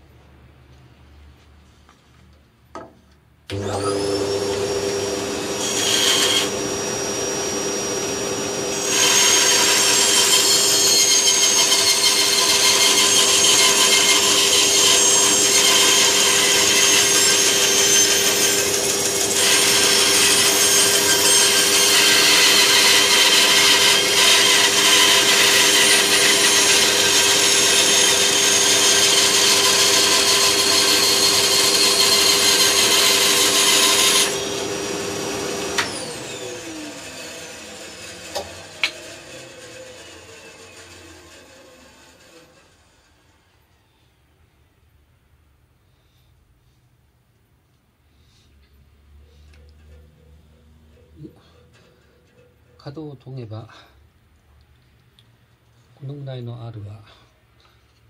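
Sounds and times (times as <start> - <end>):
band saw motor hum: 3.5 - 43.2
saw cutting wood: 3.5 - 43.4.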